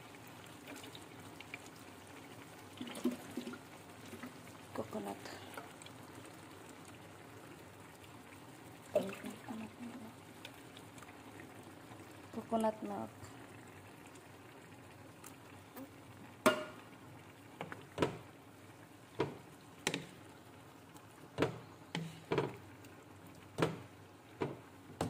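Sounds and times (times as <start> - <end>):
wooden spoon knocking against pan: 16.4 - 16.8, 19.2 - 20.2, 21.4 - 22.6, 23.6 - 25.0.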